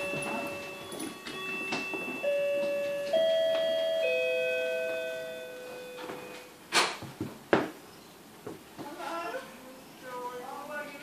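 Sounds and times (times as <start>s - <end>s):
chime notes ringing: 0.0s - 6.6s.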